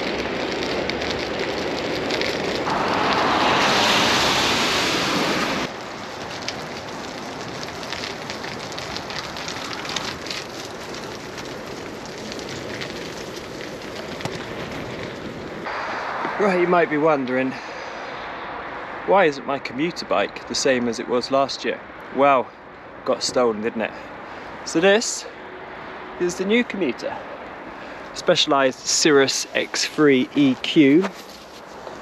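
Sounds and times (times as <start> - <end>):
wind rushing over microphone: 0.0 - 10.9, 11.5 - 20.4
bicycle tyre hiss on wet path: 0.0 - 19.0, 27.1 - 32.0.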